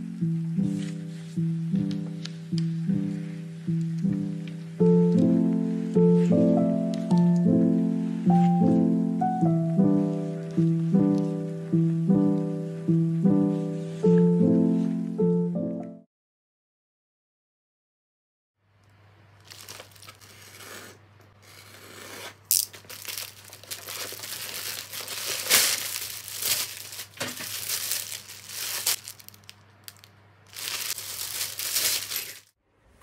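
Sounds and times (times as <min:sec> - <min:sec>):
plastic packaging crinkling: 0:19.4 - 0:20.7, 0:22.5 - 0:32.6.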